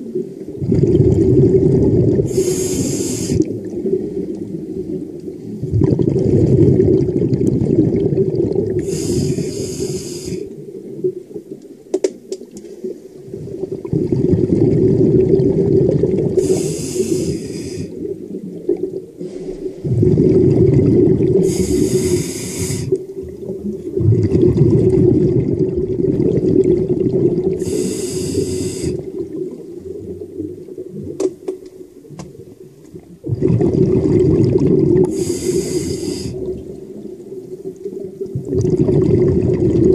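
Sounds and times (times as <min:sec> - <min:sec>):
underwater rush of water and bubbles: 0:00.0 - 0:39.9
diver breath hiss: 0:02.3 - 0:03.5, 0:08.8 - 0:10.5, 0:16.4 - 0:18.0, 0:19.2 - 0:19.8, 0:21.4 - 0:23.0, 0:27.6 - 0:29.1, 0:35.1 - 0:36.5.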